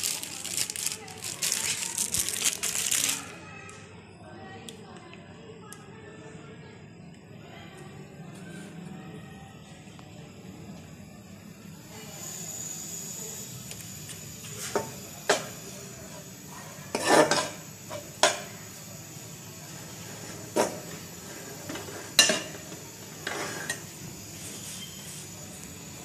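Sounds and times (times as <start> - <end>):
steel spoon scraping a pan: 16.1 - 18.4, 20.1 - 25.3.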